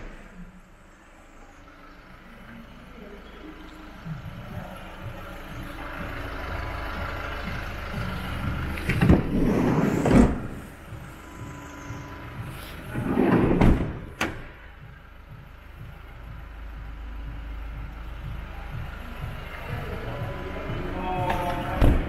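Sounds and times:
car door handling noise: 8.8 - 11.6, 12.4 - 14.6.

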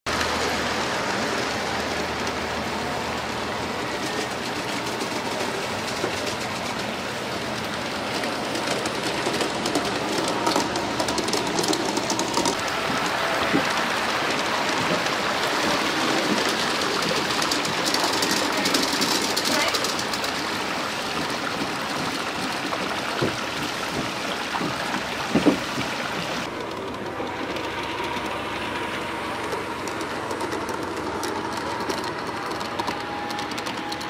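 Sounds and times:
model train wheels clattering: 0.1 - 34.0.

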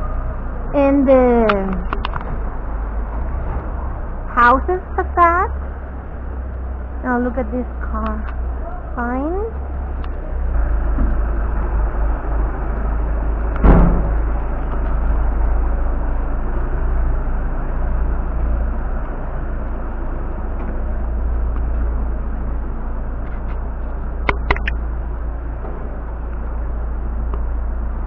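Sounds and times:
street noise rumble: 0.0 - 28.0
loud thump: 13.6 - 14.2
sharp clicks: 24.2 - 24.8.

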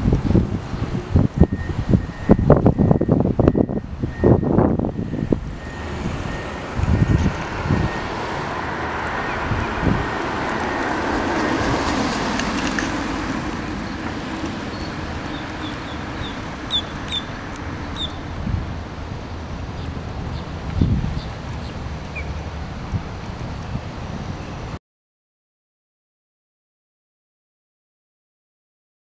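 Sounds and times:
wind buffeting microphone: 0.0 - 24.8
car driving past: 5.0 - 18.3.

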